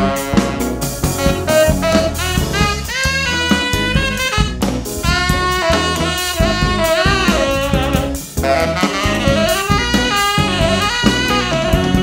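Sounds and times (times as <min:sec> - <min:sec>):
drum kit: 0:00.0 - 0:12.0
funk band playing: 0:00.0 - 0:12.0
tenor saxophone lead: 0:00.0 - 0:12.0.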